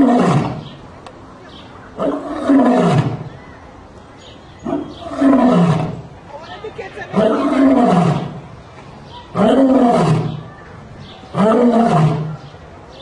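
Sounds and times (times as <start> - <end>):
lion roaring: 0.0 - 0.6, 2.0 - 3.3, 4.6 - 6.1, 7.2 - 8.4, 9.3 - 10.4, 11.3 - 12.4.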